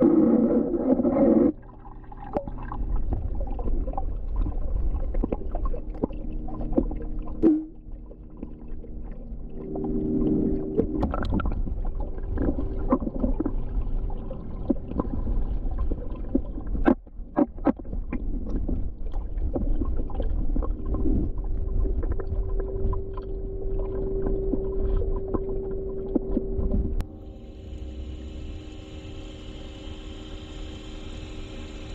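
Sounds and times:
underwater rumble: 0.0s - 31.9s
water bubbling: 0.0s - 31.9s
steady hum: 4.4s - 16.2s, 20.8s - 31.9s.

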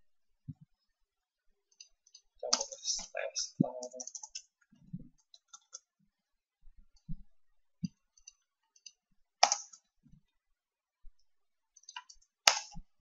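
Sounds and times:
keyboard keys clicking: 3.6s - 4.4s, 8.8s - 9.8s, 11.8s - 12.8s.

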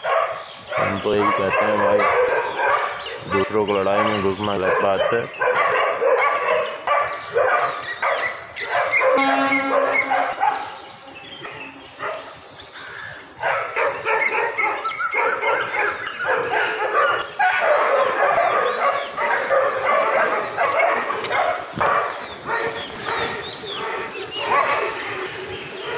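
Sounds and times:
dogs barking and yelping: 0.0s - 25.9s.

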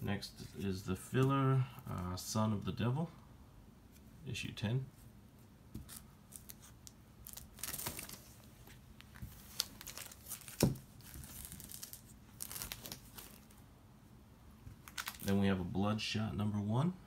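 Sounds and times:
plastic bag crinkling: 6.3s - 13.6s, 14.8s - 15.3s.

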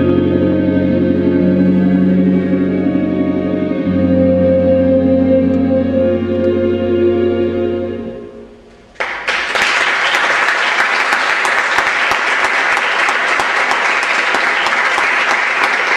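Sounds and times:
music with sustained chords: 0.0s - 8.7s
audience applauding: 9.0s - 15.9s.

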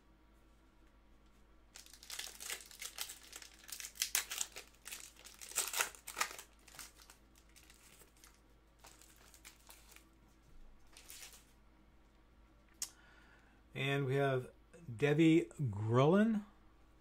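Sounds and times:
cards rustling: 1.7s - 10.1s, 10.9s - 11.5s
foil wrapper crinkling and tearing: 1.7s - 10.1s, 10.9s - 11.5s.

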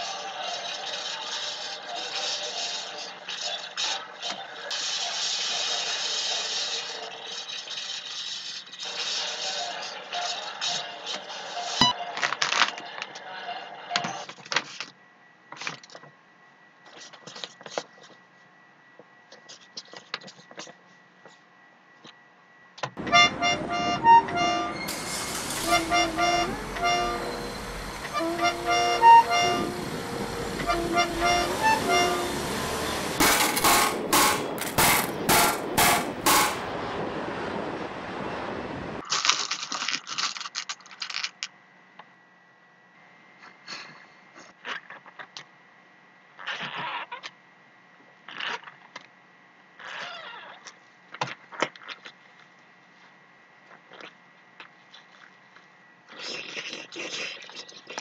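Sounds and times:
loud sharp knocks: 33.2s - 36.8s.

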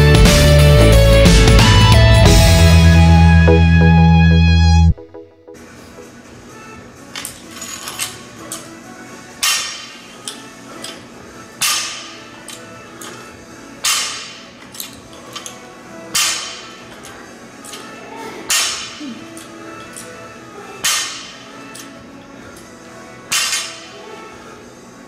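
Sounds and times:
faint background music: 2.4s - 25.0s
barbell striking rubber floor: 9.4s - 10.0s, 11.6s - 12.1s, 13.8s - 14.5s, 16.1s - 17.1s, 18.5s - 19.0s, 20.8s - 21.4s, 23.3s - 23.8s.

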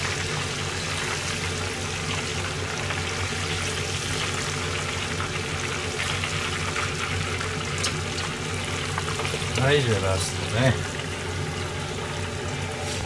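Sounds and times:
oil sizzling while deep-frying: 0.0s - 13.0s.

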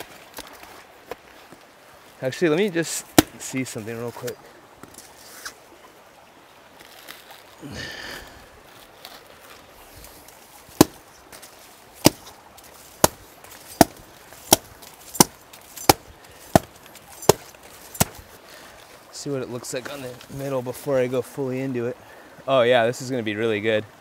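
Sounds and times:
machete chopping coconut husk: 3.2s - 3.4s, 10.7s - 11.1s, 12.0s - 18.3s.

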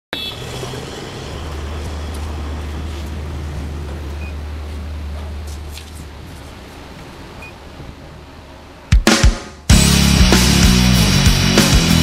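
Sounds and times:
low outdoor rumble: 0.2s - 8.9s.

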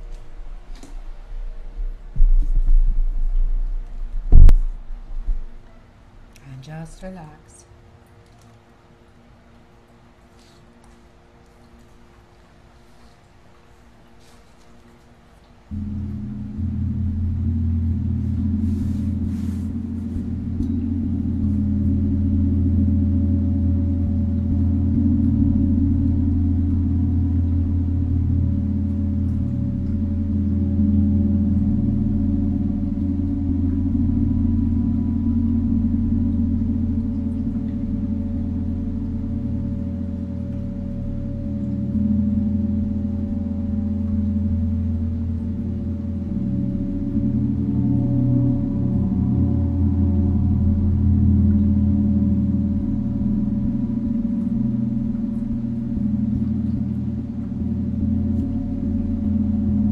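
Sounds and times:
deep gong ringing: 15.7s - 59.9s.

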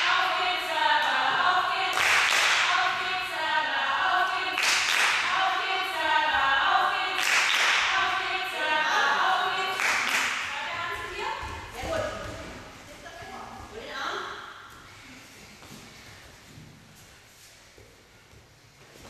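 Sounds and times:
clapping and cheering: 1.9s - 2.8s, 4.5s - 5.4s, 7.1s - 8.1s, 9.6s - 10.6s.

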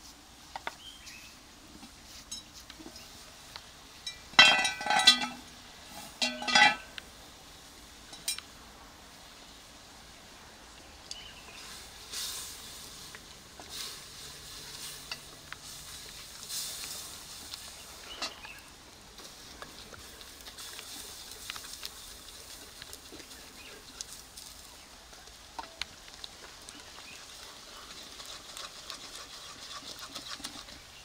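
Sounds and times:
soft hissing of pouring meal: 0.0s - 27.9s
pot lid clanking: 4.4s - 5.5s, 6.2s - 6.9s.

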